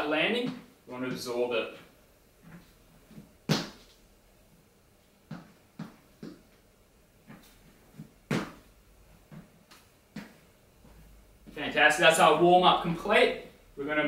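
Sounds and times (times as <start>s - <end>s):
light foot taps and steps: 0.3s - 11.8s
heavy thud of jump landing: 8.3s - 8.7s.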